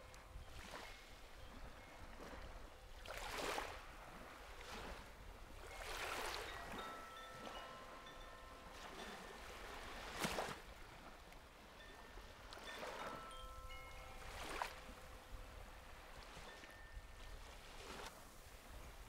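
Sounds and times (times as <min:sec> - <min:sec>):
small waves washing onto sand: 0:00.0 - 0:19.0
chime bells tinkling: 0:06.4 - 0:10.1, 0:11.8 - 0:17.4.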